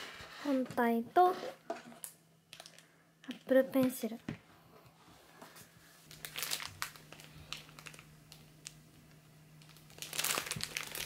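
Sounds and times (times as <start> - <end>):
faint steady hum: 0.0 - 11.0
plastic packaging crinkling: 2.5 - 2.9, 6.0 - 11.0.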